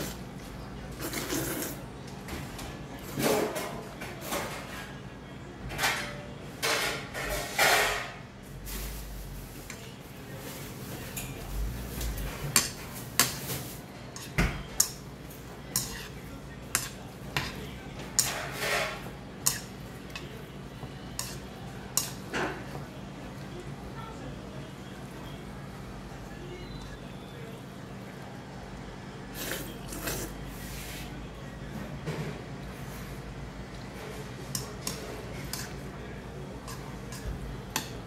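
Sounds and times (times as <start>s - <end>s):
metal utensils scraping ceramic bowl: 15.7s - 17.6s, 18.2s - 20.3s, 21.2s - 22.2s.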